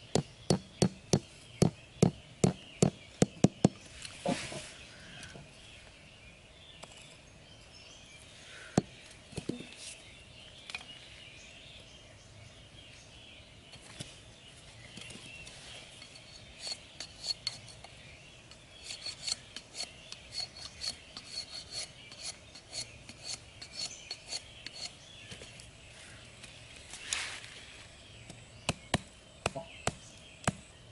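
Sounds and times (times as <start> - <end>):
knife shaving bamboo stick: 18.5 - 25.0.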